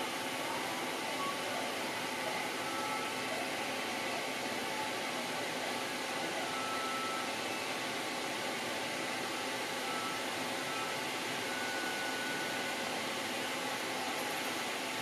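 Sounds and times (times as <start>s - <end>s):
faint whistle-like tone: 2.6s - 3.1s, 6.4s - 7.6s, 9.8s - 12.8s.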